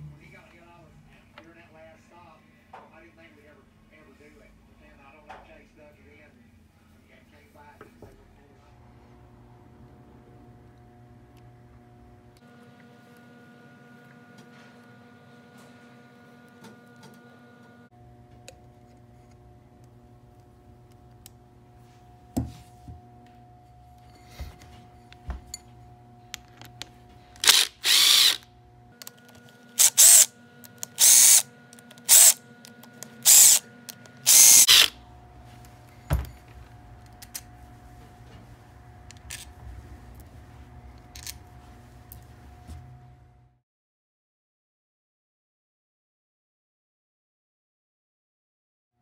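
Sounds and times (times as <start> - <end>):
tools being handled: 23.7 - 28.4, 29.0 - 35.0, 35.7 - 37.6, 39.0 - 39.6, 41.0 - 41.6
cordless drill bursts: 27.4 - 28.5, 29.8 - 32.4, 33.2 - 35.0.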